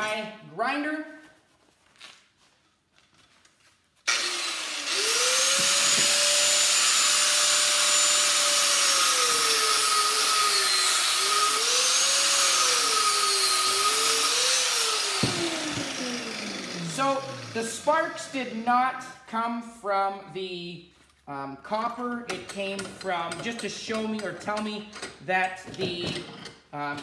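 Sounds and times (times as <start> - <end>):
angle grinder cutting steel: 4.1 - 18.9.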